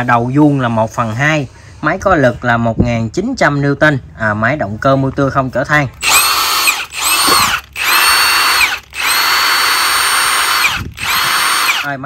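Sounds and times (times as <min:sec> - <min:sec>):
impact wrench whining: 0:06.0 - 0:12.0.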